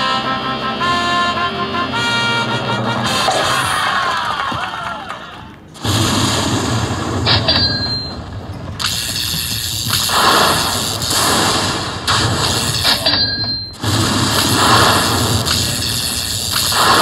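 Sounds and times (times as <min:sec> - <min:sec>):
slot machine hits and dings: 0:07.3 - 0:10.1, 0:12.4 - 0:17.0
high ring: 0:12.8 - 0:13.8.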